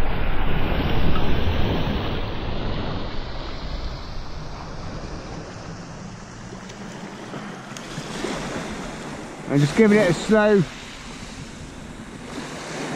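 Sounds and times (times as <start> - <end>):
wind buffeting microphone: 0.0 - 12.9
waves washing onto shingle: 2.7 - 12.9.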